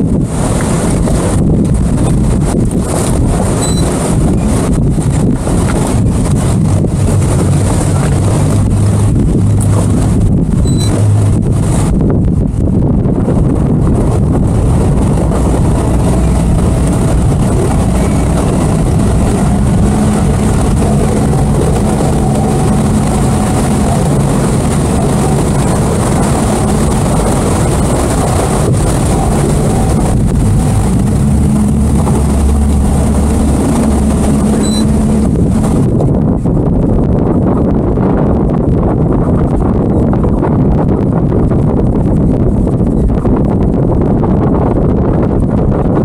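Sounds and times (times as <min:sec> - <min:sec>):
motorboat engine running: 0:00.0 - 0:46.0
wind rushing over microphone: 0:00.0 - 0:46.0
water hissing along hull: 0:14.0 - 0:35.9.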